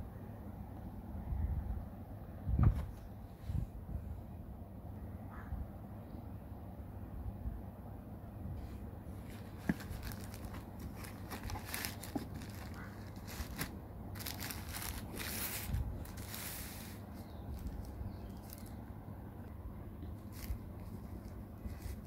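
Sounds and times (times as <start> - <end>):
plastic sheet rustling and crinkling: 9.2 - 18.8, 20.2 - 22.0.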